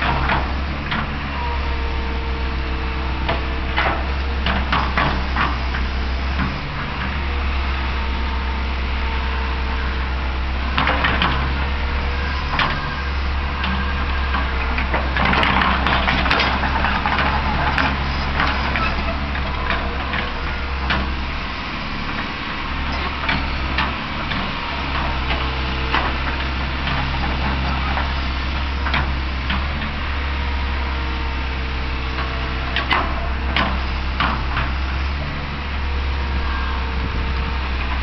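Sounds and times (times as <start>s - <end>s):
excavator diesel engine running: 0.0s - 38.0s.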